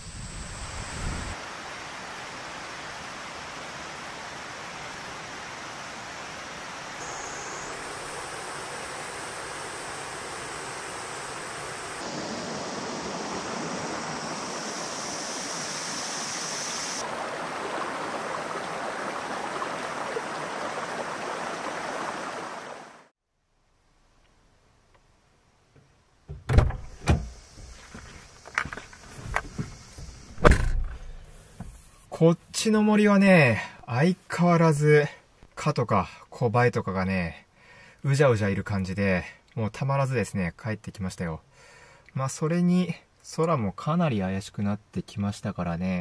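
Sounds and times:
steady rushing outdoor ambience: 0.0s - 17.2s.

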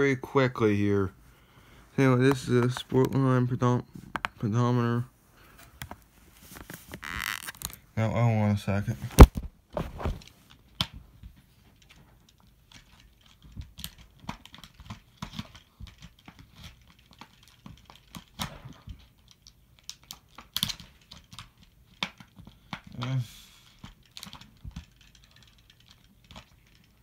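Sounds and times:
plastic blister pack crinkling: 5.7s - 7.9s.

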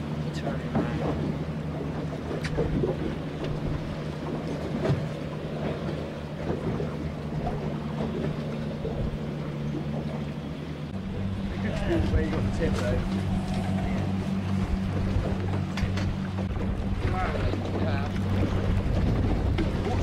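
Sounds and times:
boat engine humming: 0.0s - 20.0s
water noise: 0.0s - 20.0s
wind: 0.0s - 20.0s.

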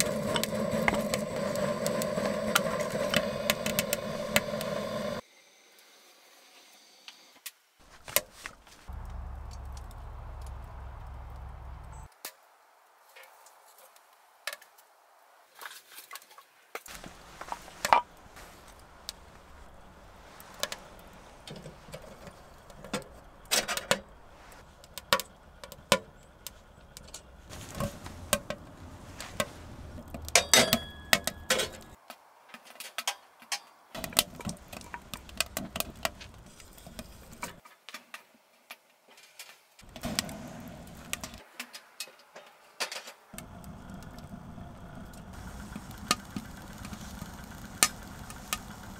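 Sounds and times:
burning wood snapping: 0.0s - 5.2s, 7.9s - 12.0s, 16.8s - 32.0s, 34.0s - 37.6s, 39.8s - 41.4s, 43.4s - 48.9s
firewood loaded into stove: 0.0s - 5.2s, 16.9s - 32.0s, 32.8s - 37.7s, 39.8s - 41.8s, 42.8s - 48.9s.

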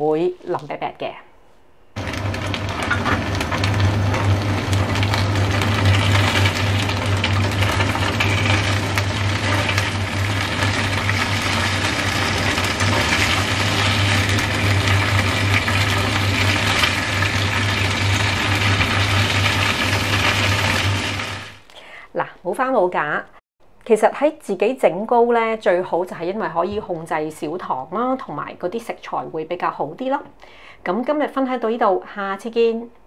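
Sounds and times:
cake sizzling in oil: 2.0s - 21.6s.

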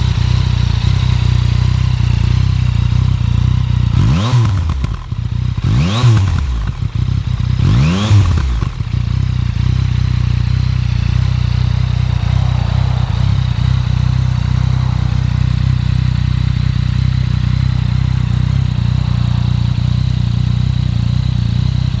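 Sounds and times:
motorcycle engine revving and idling: 0.0s - 22.0s.

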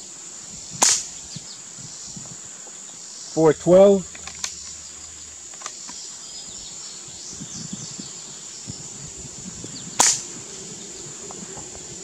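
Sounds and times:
drone of insects: 0.0s - 12.0s
air rifle shot: 0.8s - 1.1s, 10.0s - 10.3s.

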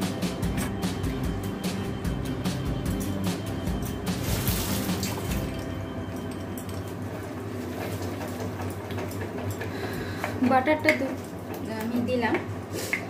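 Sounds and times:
food sizzling and bubbling in a pan: 3.9s - 13.0s.

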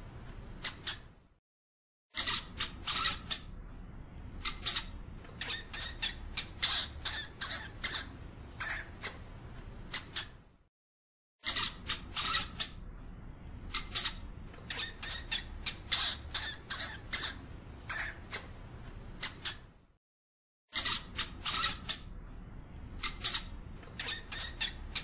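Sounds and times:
hamster squeaking: 0.6s - 1.1s, 2.2s - 3.5s, 4.4s - 9.3s, 9.9s - 10.4s, 11.4s - 12.8s, 13.7s - 18.6s, 19.2s - 19.7s, 20.7s - 22.2s, 23.0s - 25.0s.

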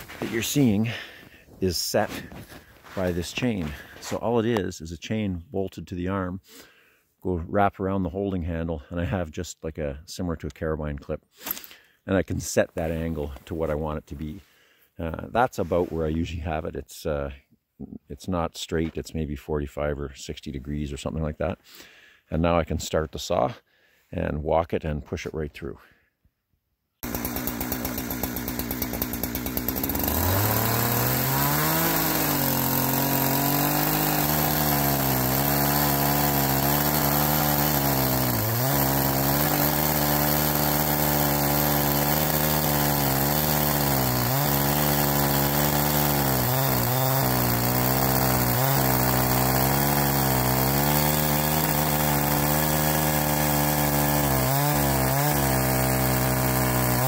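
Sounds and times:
chainsaw cutting log: 0.0s - 4.4s, 11.4s - 11.8s, 27.0s - 57.0s.

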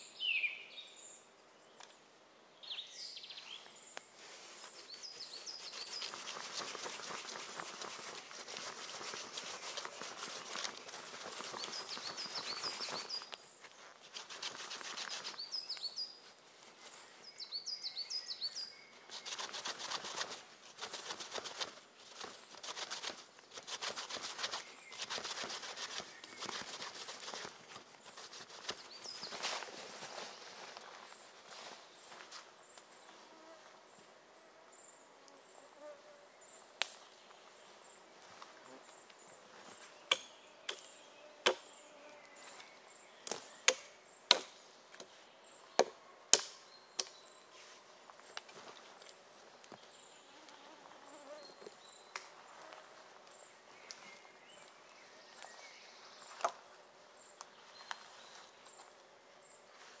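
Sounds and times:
axe chopping wood: 43.7s - 44.5s.

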